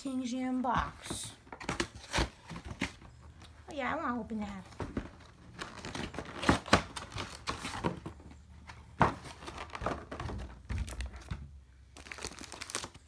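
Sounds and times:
packaging crinkling: 5.0 - 8.2, 11.9 - 13.0.

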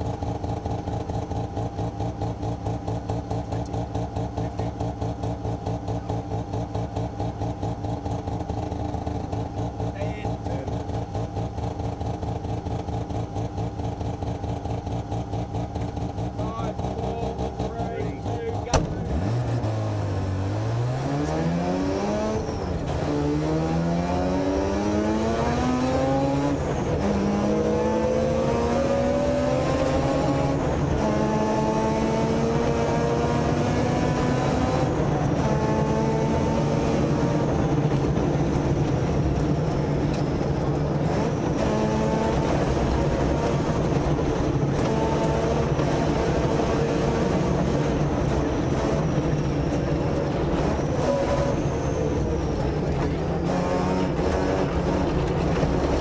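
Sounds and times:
rotary engine revving: 1.8 - 56.0.

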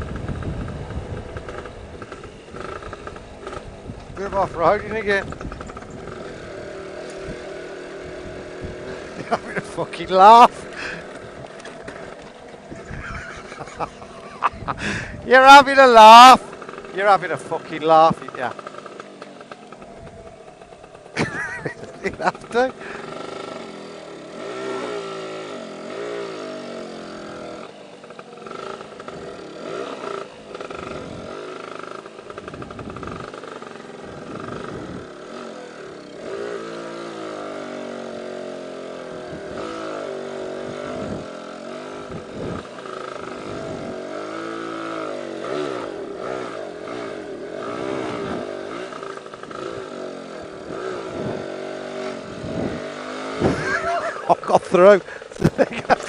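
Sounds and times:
scooter two-stroke engine: 0.0 - 56.0.

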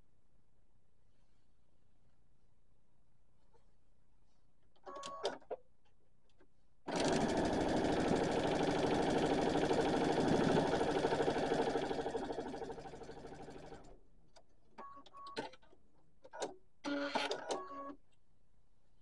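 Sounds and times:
sewing machine stitching: 6.9 - 13.9.

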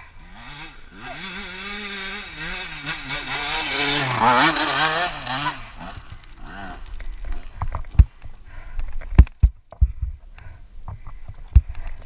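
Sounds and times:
dirt bike engine revving: 0.0 - 7.5.

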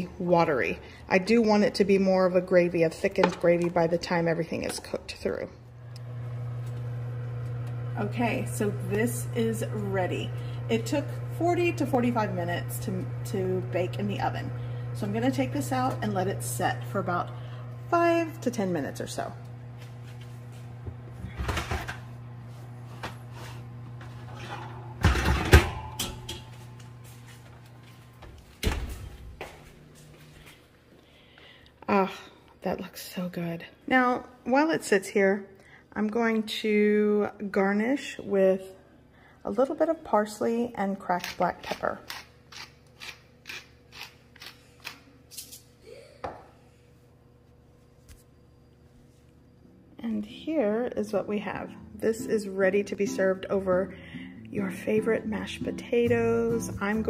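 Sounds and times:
low steady hum: 0.0 - 43.4
metal pan scraping on wire rack: 24.2 - 26.4.

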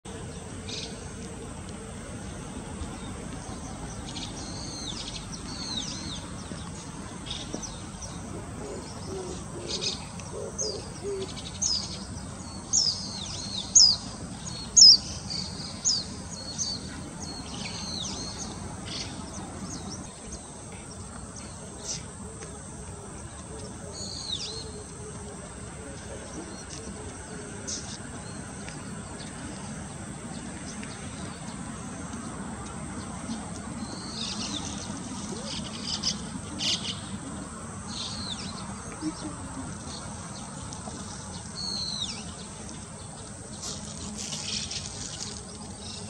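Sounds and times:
steady background noise: 0.1 - 46.0
small birds chirping: 2.2 - 22.6.

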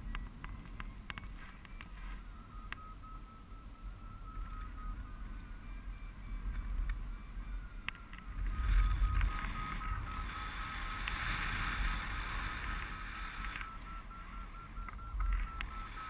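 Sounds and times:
variometer beeping: 0.0 - 16.0
wind rushing over microphone: 5.1 - 13.6.

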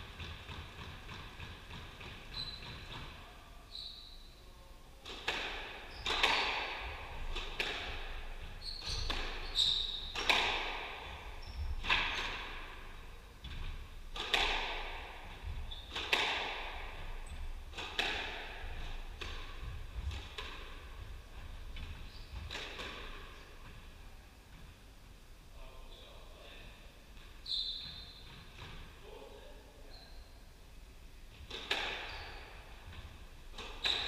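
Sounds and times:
squash ball hitting walls: 0.0 - 3.3, 5.0 - 23.8, 31.4 - 34.0
shoes squeaking on wooden floor: 2.2 - 2.9, 8.4 - 10.3, 11.0 - 12.5, 20.9 - 22.6, 27.2 - 28.7.

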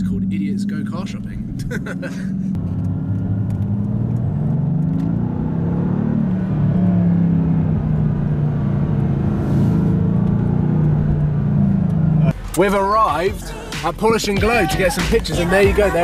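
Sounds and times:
car engine at low revs: 0.0 - 12.5.

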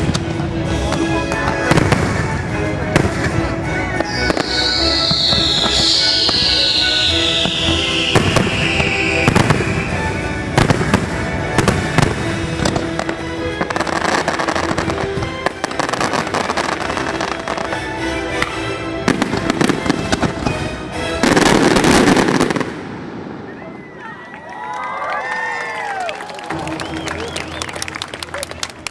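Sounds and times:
music soundtrack: 0.0 - 23.5, 26.1 - 28.9
fireworks bursting: 0.9 - 23.6
falling high tone: 4.1 - 10.6.

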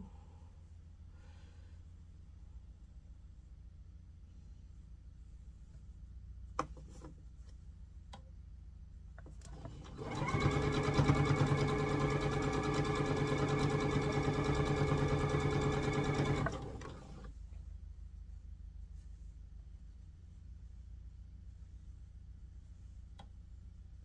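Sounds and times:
sewing machine stitching: 9.4 - 17.3.

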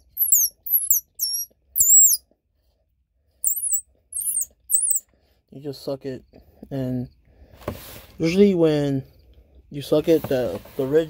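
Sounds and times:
high-pitched warbling squeaks: 0.0 - 2.2, 3.4 - 5.0.

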